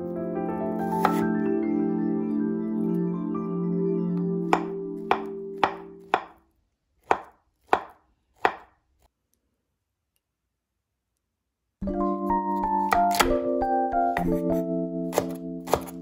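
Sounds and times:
knife knocking on cutting board: 4.6 - 6.4, 7.1 - 8.7.

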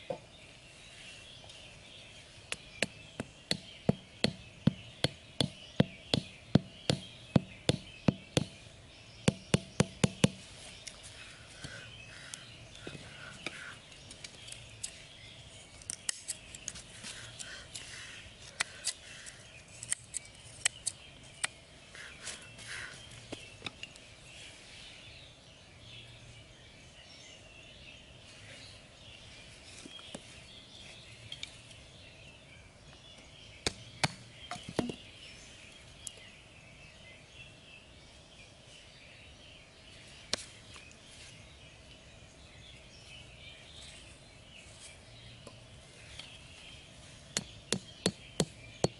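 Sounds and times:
outdoor background hiss: 0.0 - 48.9.

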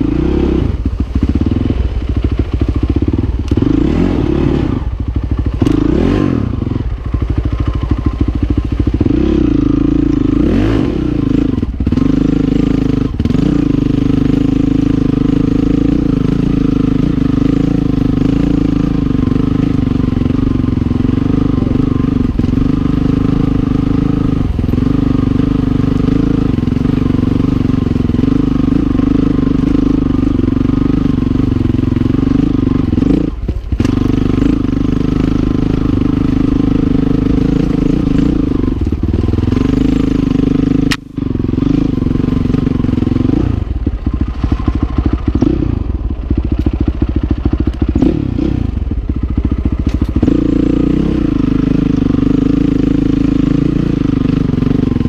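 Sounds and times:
motorcycle engine running: 0.0 - 55.0.

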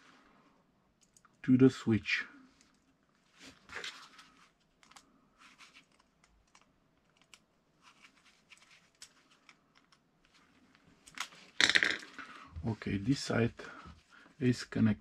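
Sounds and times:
small clicks of cable terminals: 1.0 - 1.4, 4.8 - 5.1, 5.8 - 7.5, 8.9 - 10.0
rustling of gloved hands: 2.4 - 14.5.

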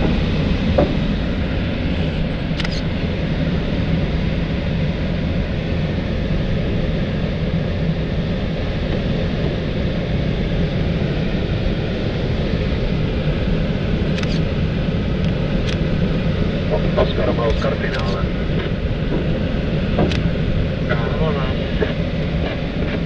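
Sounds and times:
air rushing in cockpit: 0.0 - 23.0
low hum: 0.0 - 23.0.

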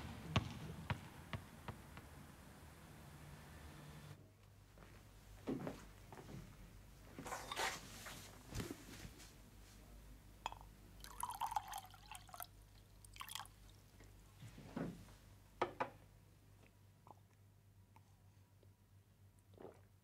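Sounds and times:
coffee pouring into mug: 10.5 - 12.5, 13.1 - 13.6.

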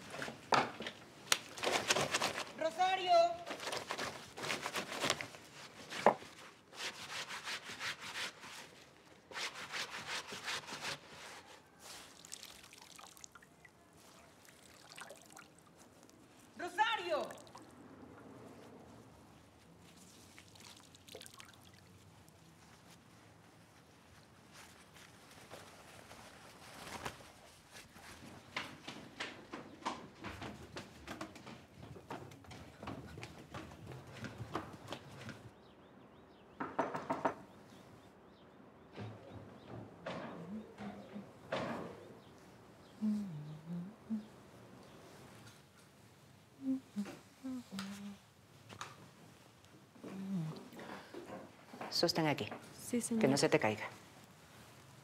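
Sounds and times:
faint handling of wet cloth: 0.0 - 28.9, 44.2 - 51.8, 52.6 - 55.0
wet cloth scrubbed on wooden board: 4.3 - 12.7.

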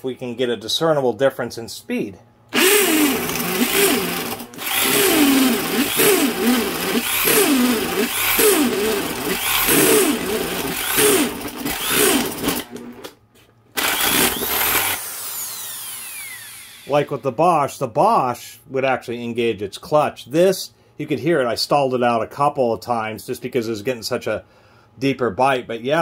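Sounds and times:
hammer drill boring into wood: 2.5 - 13.0, 13.8 - 17.1.

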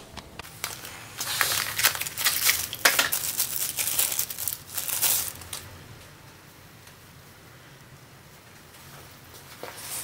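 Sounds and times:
cardboard packaging crinkling and tearing: 0.1 - 5.6.

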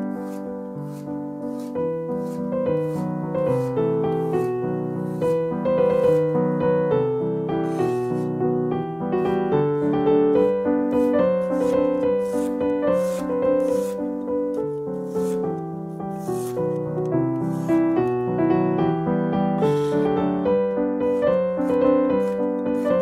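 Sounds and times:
knife slicing on wooden board: 0.0 - 6.4, 7.6 - 8.4, 9.2 - 18.0, 19.6 - 20.2, 21.1 - 23.0
piano music: 0.0 - 23.0.

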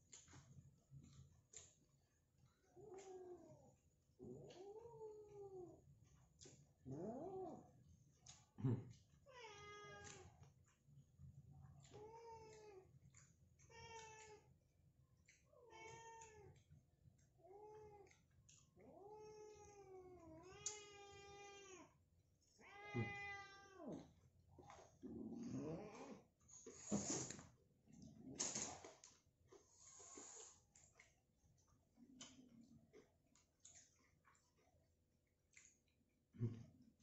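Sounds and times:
cat meowing: 22.6 - 24.0.

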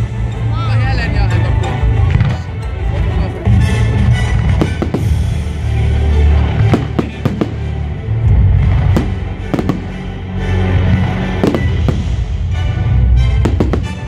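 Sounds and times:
music playing: 0.0 - 14.0
fireworks shells bursting: 11.4 - 12.3, 13.4 - 14.0.

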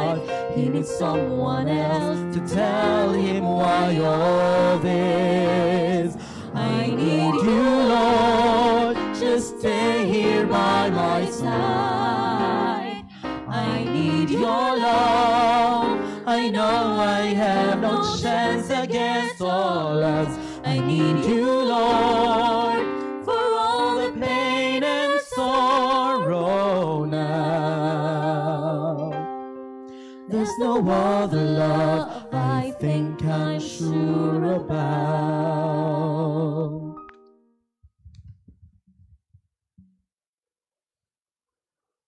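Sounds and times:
person singing a hymn: 0.0 - 29.2, 30.2 - 37.0
instrumental accompaniment: 2.2 - 16.3.

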